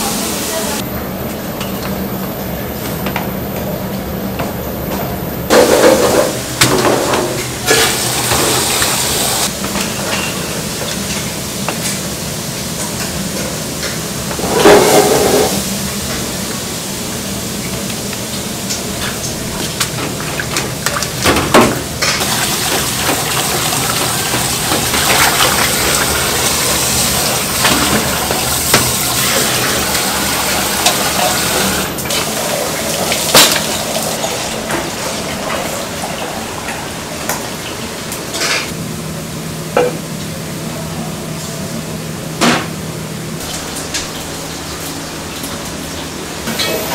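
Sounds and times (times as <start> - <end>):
water running and splashing: 7.7 - 9.5, 22.2 - 38.1.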